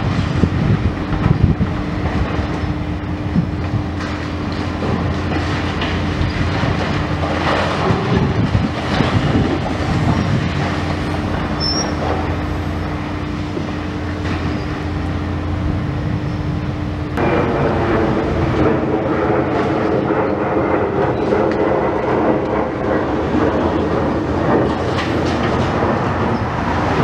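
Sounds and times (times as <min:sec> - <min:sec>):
excavator engine droning: 0:00.0 - 0:27.0.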